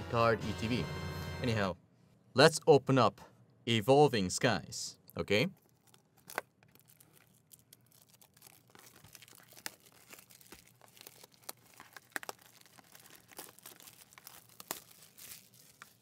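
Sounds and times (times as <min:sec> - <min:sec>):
plastic wrap crackling and tearing: 0:05.6 - 0:16.0.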